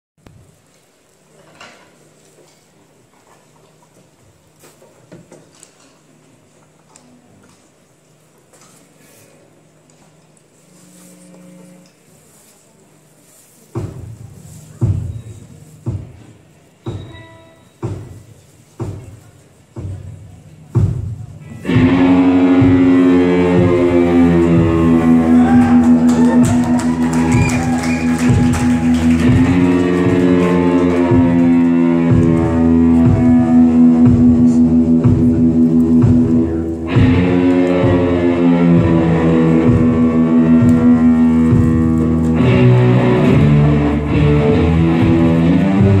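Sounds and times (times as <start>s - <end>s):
bending guitar notes: 21.4s - 46.0s
heavy rock band playing: 21.6s - 46.0s.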